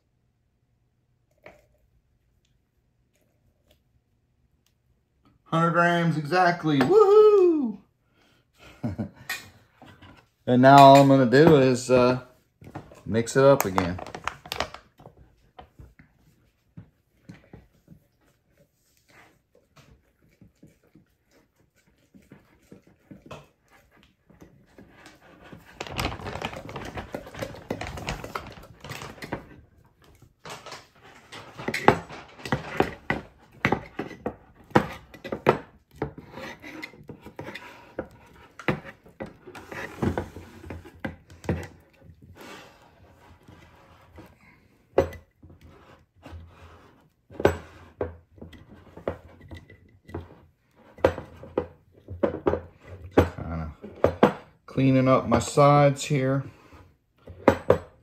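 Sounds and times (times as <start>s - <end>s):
spatula scraping thick dough: 36.1s - 40.9s.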